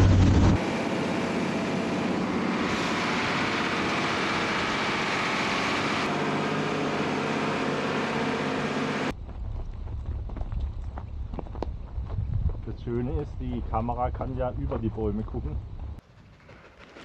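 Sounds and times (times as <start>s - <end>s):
faint truck engine: 0.0s - 12.1s.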